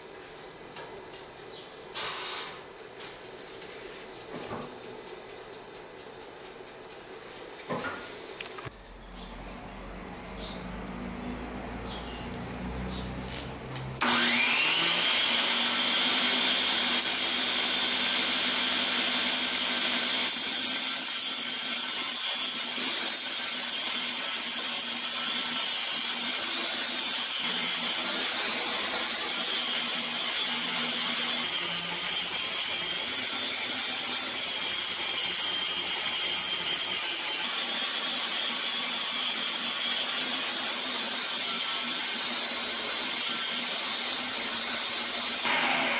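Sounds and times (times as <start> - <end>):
belt grinder motor whining: 12.3 - 45.9.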